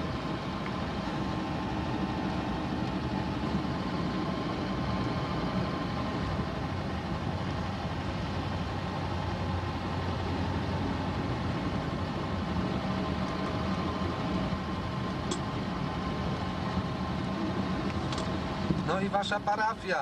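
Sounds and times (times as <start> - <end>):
low hum: 0.0 - 19.8
car engine running: 0.0 - 20.0
road noise: 0.0 - 20.0.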